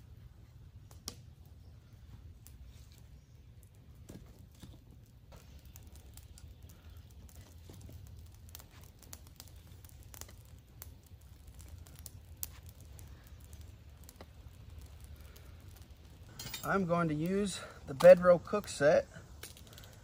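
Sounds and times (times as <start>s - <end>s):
campfire crackling and popping: 0.0s - 20.0s
sticks shifted on fire: 0.8s - 20.0s.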